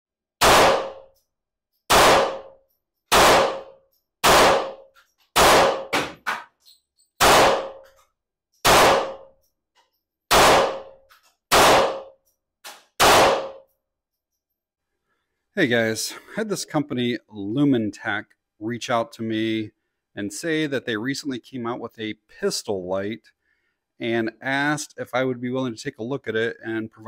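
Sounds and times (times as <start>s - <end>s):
handgun shots: 0.4s - 1.1s, 1.9s - 6.5s, 7.2s - 7.9s, 8.6s - 9.3s, 10.3s - 13.7s.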